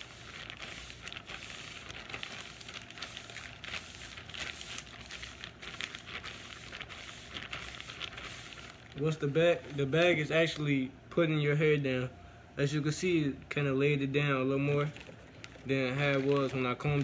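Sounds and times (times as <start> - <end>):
plastic bag crinkling on hair: 0.0 - 10.6, 14.7 - 17.0.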